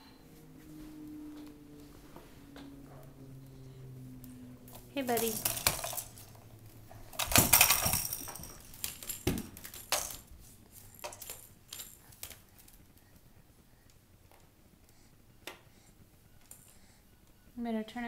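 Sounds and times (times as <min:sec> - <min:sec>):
basket and toy blocks clattering: 0:05.1 - 0:06.4, 0:07.1 - 0:10.3.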